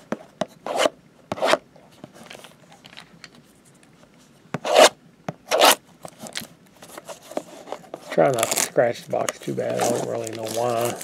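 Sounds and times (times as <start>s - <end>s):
hands scraping shrink-wrapped box: 8.1s - 8.8s, 9.6s - 11.0s.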